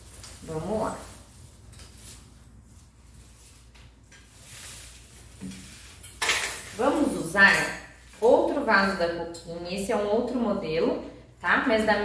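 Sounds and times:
fern fronds rustling: 0.0 - 6.0.

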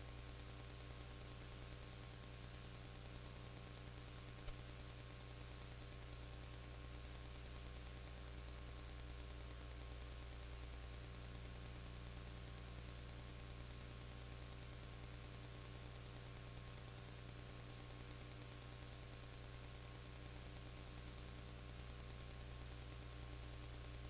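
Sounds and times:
electrical mains hum: 0.0 - 24.0.

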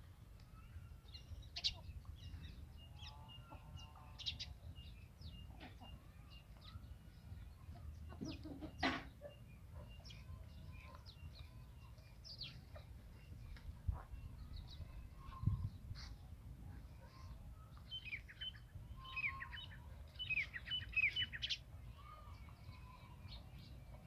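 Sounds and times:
chickens clucking: 5.4 - 6.6, 7.7 - 10.1.

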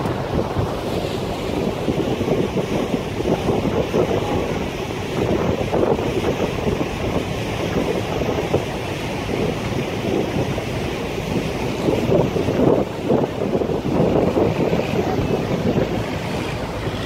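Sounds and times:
water rushing past hull: 0.0 - 17.0
wind buffeting microphone: 0.0 - 17.0.

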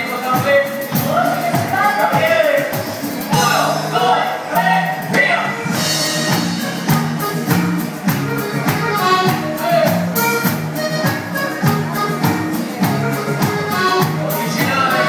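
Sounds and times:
live dance band playing: 0.0 - 15.0
repeating bass line: 0.0 - 15.0
person singing: 13.1 - 15.0.

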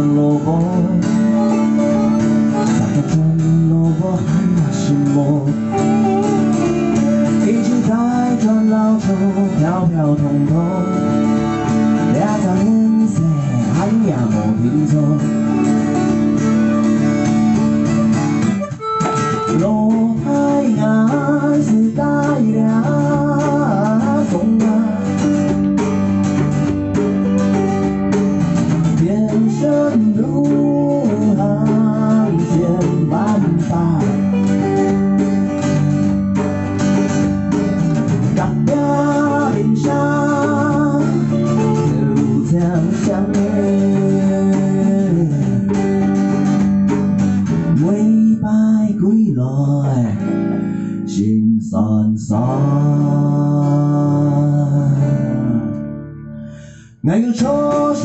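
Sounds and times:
bass guitar: 0.0 - 58.0
electric guitar: 0.0 - 58.0
strummed acoustic guitar: 0.0 - 58.0
wavering melody line: 5.6 - 7.7.

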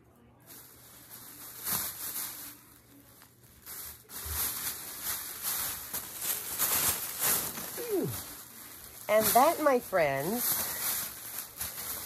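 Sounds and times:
plastic bag crinkling: 0.4 - 12.0.

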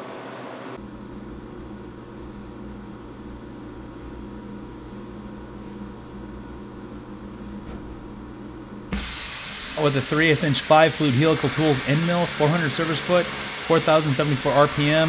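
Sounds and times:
milling machine humming: 8.9 - 15.0.

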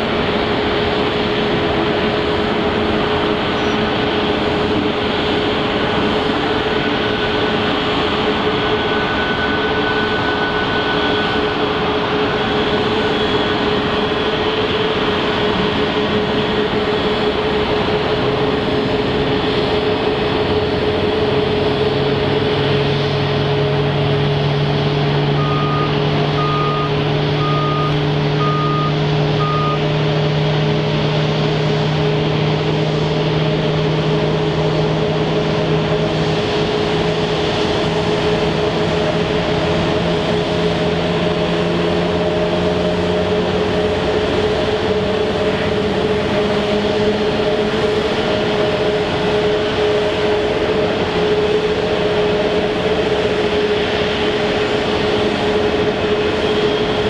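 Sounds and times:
idling aircraft engines: 0.0 - 57.0
reversing alarm beeps: 25.4 - 29.9.

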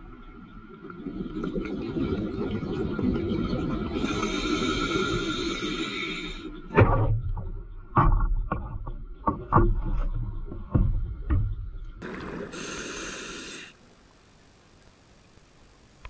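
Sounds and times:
exhaled bubbles underwater: 0.0 - 6.8
regulator inhalation hiss: 4.0 - 6.6, 12.0 - 13.9.

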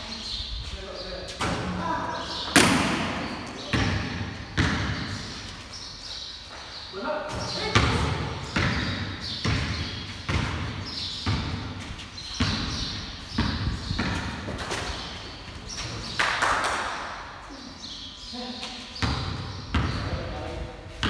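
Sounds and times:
ball hitting hoop: 2.5 - 5.3, 7.4 - 11.8
basketball bouncing on concrete: 2.6 - 5.3, 7.3 - 15.0, 19.0 - 20.3.

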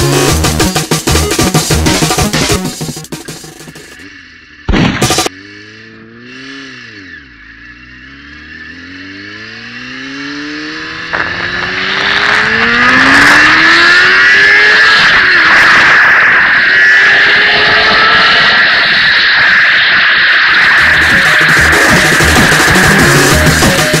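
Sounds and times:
motorcycle engine accelerating: 4.8 - 24.0.

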